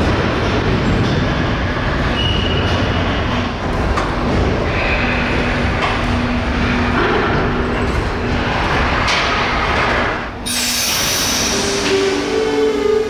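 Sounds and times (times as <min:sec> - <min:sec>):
squealing wheels: 0:02.1 - 0:03.2.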